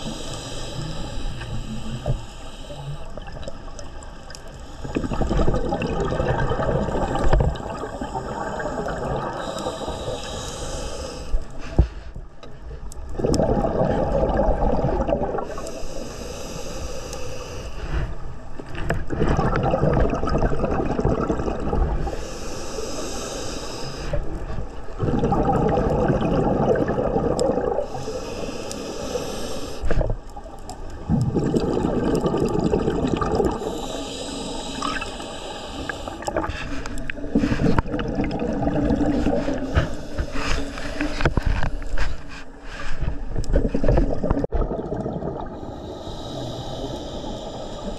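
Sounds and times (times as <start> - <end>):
regulator air hiss: 0.0 - 3.2, 7.8 - 12.1, 15.5 - 18.3, 22.1 - 24.3, 27.9 - 29.9, 33.6 - 37.8, 45.6 - 47.9
exhaled bubbles burbling: 4.8 - 9.6, 13.1 - 15.6, 18.9 - 22.1, 24.9 - 28.0, 30.0 - 33.8, 36.0 - 39.9, 43.5 - 45.8.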